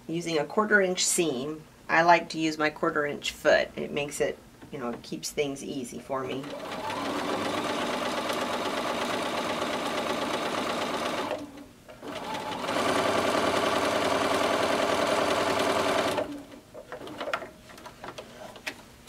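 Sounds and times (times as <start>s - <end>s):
sewing machine stitching: 6.4s - 17.5s.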